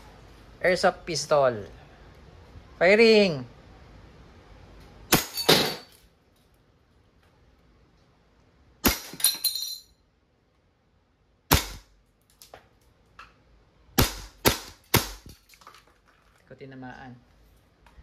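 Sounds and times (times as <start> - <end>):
airsoft pistol shots: 8.8 - 9.2, 11.5 - 11.9, 14.0 - 15.4.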